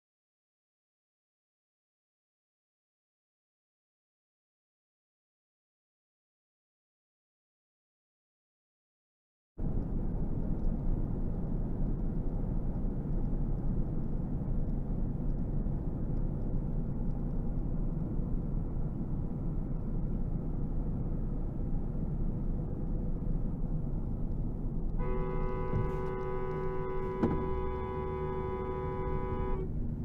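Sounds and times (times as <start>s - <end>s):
car road and engine noise: 9.6s - 30.0s.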